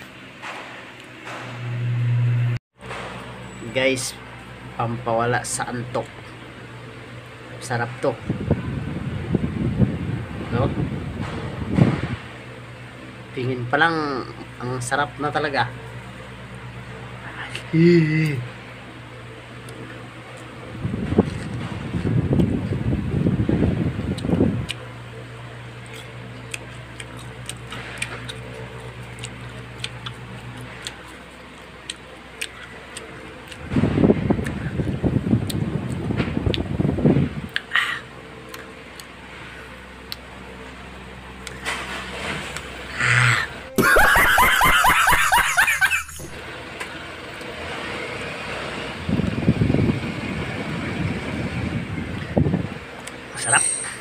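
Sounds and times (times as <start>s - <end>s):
steady low hum: 0.0s - 54.0s
man laughing loudly: 43.7s - 46.4s.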